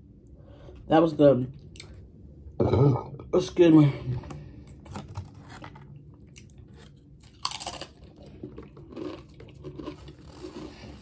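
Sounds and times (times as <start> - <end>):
soft chewing: 5.6 - 11.0.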